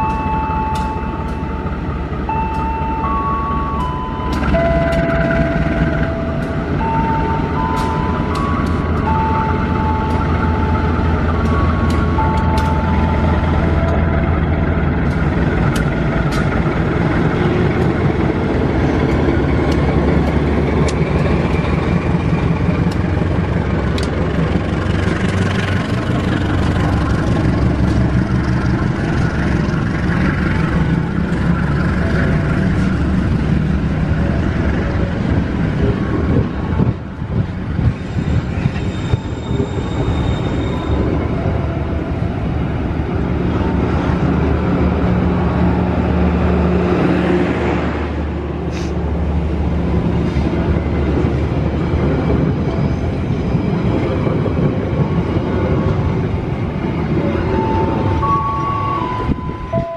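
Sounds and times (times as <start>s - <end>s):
locomotive engine running under load: 0.0s - 59.9s
train coaches rumbling: 0.0s - 59.9s
wheels clicking over rail joints: 3.8s - 45.9s.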